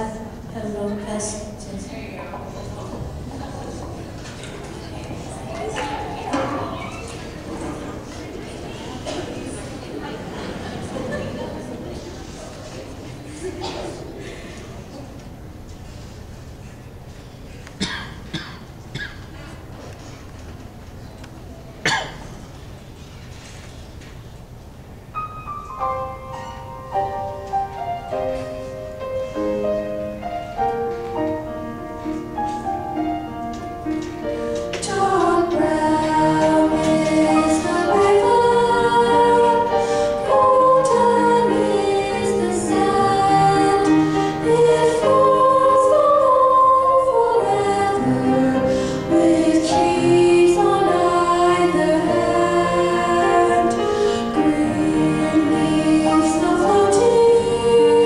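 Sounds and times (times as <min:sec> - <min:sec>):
children's choir singing: 0:00.0 - 0:15.2, 0:25.8 - 0:58.0
piano accompaniment: 0:24.9 - 0:58.0.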